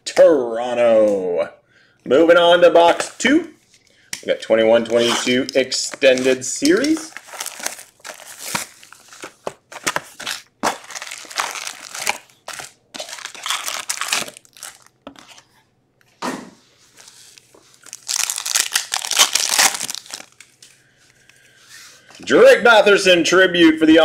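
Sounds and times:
plastic and foil wrapping crinkling: 4.9 - 15.5, 16.9 - 21.2.

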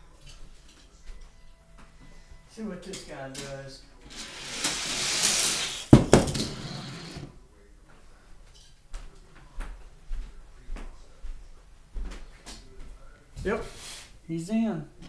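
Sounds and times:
toy car rolling down plastic track: 4.0 - 7.3.

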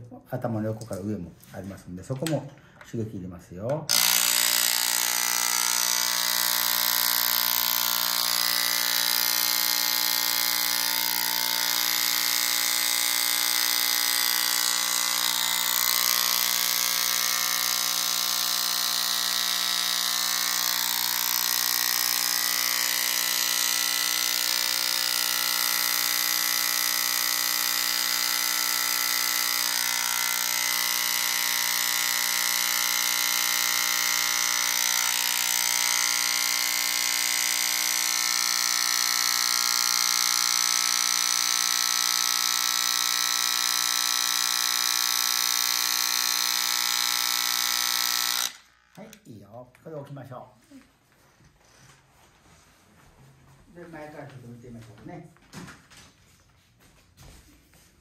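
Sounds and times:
electric massager buzzing hum: 3.9 - 49.3.

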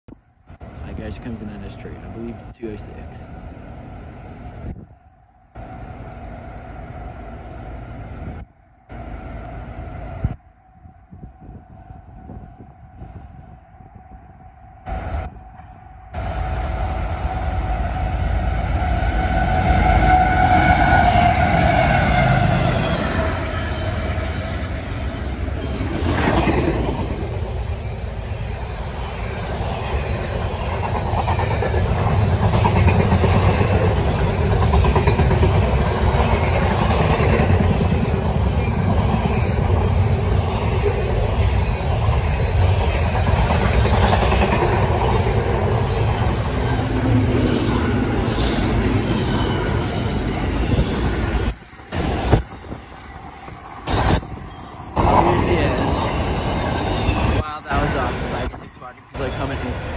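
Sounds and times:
rumble and clatter of rail cars: 0.1 - 59.9
diesel locomotives passing: 0.2 - 59.9
multi-tone train horn: 15.7 - 24.4.

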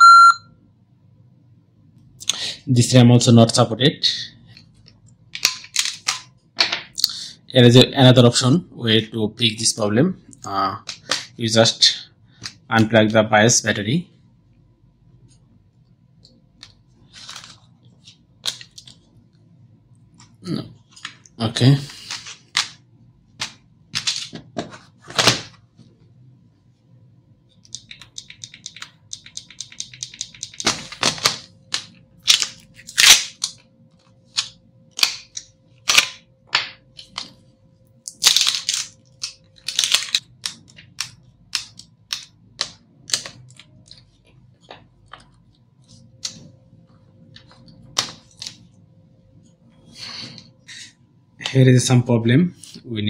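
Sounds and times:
laptop parts clicking and knocking: 27.6 - 33.7, 38.6 - 44.0.

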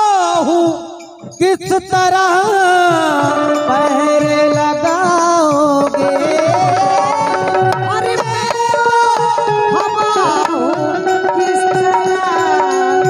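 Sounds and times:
keyboard accompaniment: 0.0 - 13.0
steady drum beat: 0.0 - 13.0.

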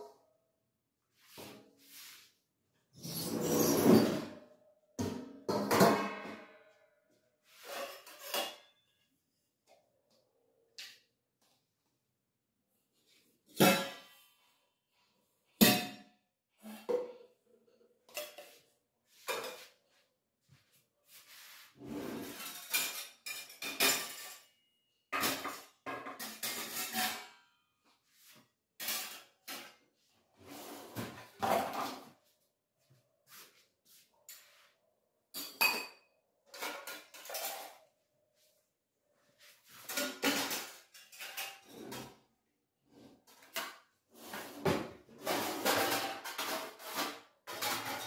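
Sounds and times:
metal utensils clattering: 7.6 - 8.8, 22.0 - 24.6, 25.2 - 27.4, 28.8 - 29.8, 35.3 - 37.9, 39.8 - 42.2, 43.3 - 48.0.

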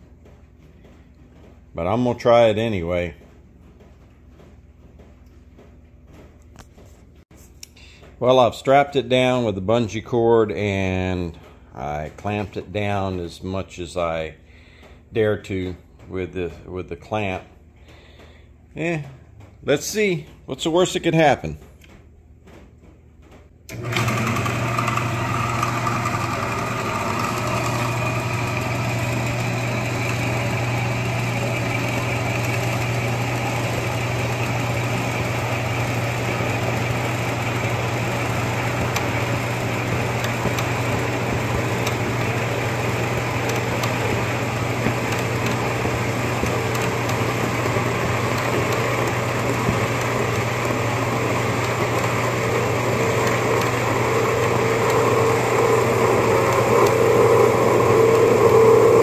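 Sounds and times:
band saw running: 23.7 - 59.0.

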